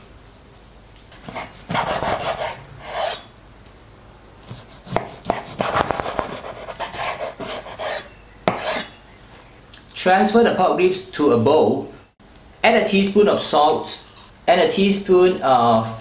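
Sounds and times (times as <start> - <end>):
knife cutting on wooden board: 1.1 - 3.3, 4.4 - 9.0.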